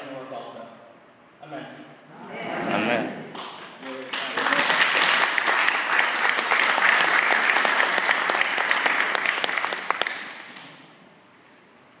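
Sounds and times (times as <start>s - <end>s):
congregation applauding: 3.3s - 10.9s.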